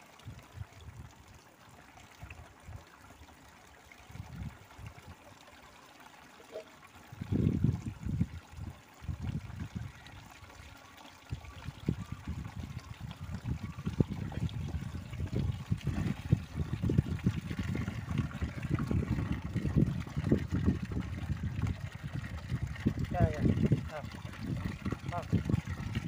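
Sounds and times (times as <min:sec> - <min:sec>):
water pouring into plastic tub: 0:00.0 - 0:26.0
low rumbles: 0:13.4 - 0:25.9.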